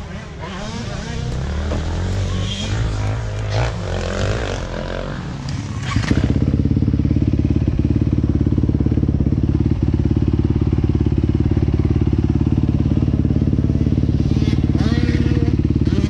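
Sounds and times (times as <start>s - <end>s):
motorcycle engine idling: 5.2s - 16.0s.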